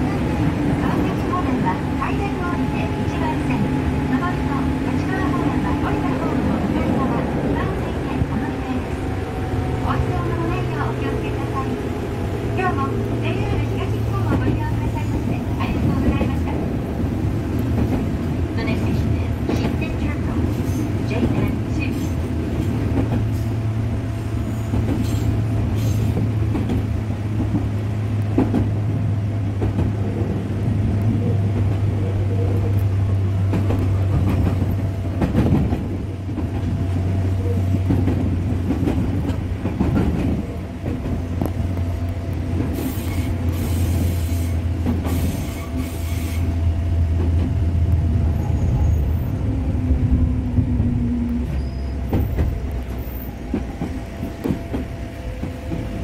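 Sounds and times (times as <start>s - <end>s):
train wheels rumbling: 0.0s - 56.0s
wheels squealing on curve: 51.5s - 52.3s.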